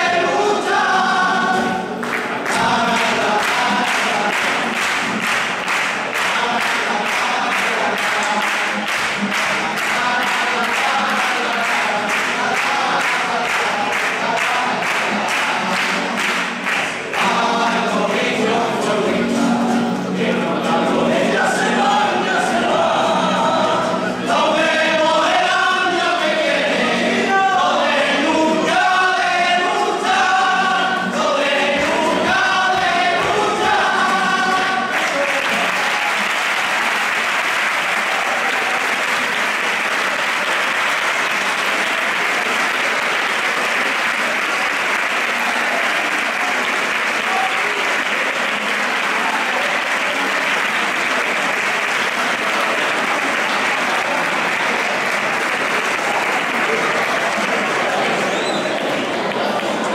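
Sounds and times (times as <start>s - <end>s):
chorus singing: 0.0s - 59.9s
audience applause: 1.6s - 17.8s, 31.8s - 59.9s.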